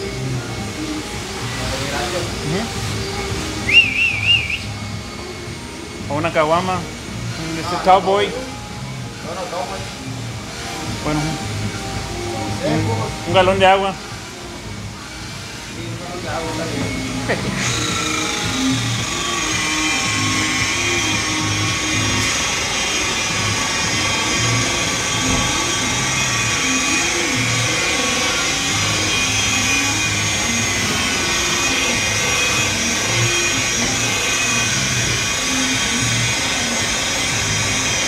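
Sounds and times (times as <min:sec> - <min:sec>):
music: 0:00.0 - 0:38.0
polisher motor whine: 0:00.0 - 0:38.0.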